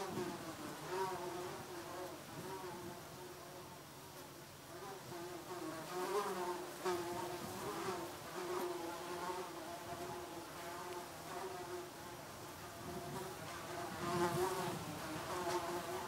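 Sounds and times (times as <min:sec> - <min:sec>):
flying insect buzzing: 0:00.0 - 0:16.0.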